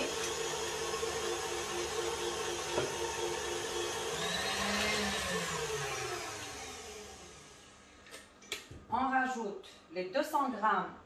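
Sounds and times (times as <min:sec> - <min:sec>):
stand mixer motor whine: 0:00.0 - 0:07.9.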